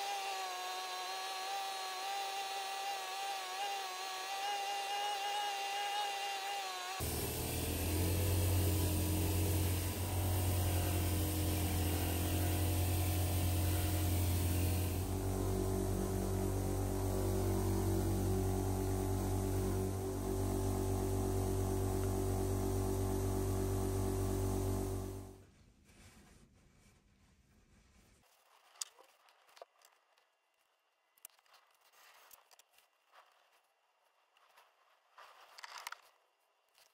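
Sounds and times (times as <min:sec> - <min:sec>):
electric machine humming: 0:00.0 - 0:25.4.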